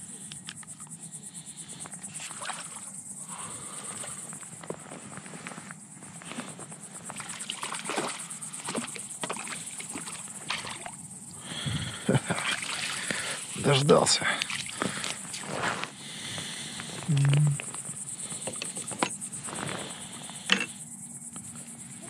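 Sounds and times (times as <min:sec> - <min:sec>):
high insect trill: 0:00.0 - 0:22.0
water splashing and sloshing: 0:02.0 - 0:03.0, 0:07.0 - 0:11.0, 0:12.2 - 0:15.7.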